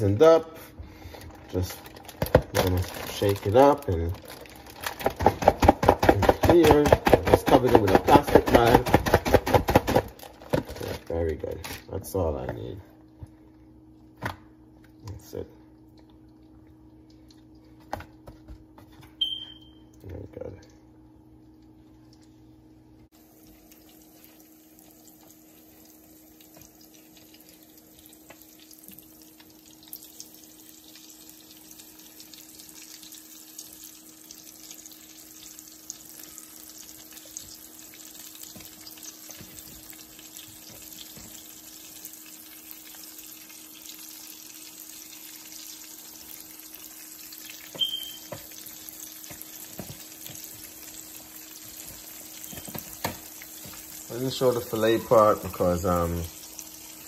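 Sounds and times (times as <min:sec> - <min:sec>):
fish frying in oil: 0:00.0 - 0:12.7, 0:21.3 - 0:57.0.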